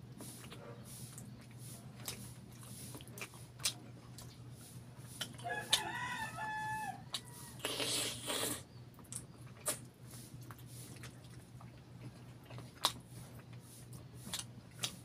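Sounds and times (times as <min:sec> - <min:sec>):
mouth clicks and smacks eating: 0:00.2 - 0:05.9, 0:07.1 - 0:15.0
rooster crowing: 0:05.4 - 0:07.6.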